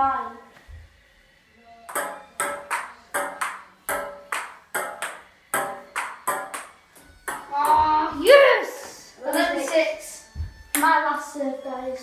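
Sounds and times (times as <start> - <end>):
table tennis paddle hits: 1.9 - 7.9
ball bouncing on glass: 1.9 - 8.0.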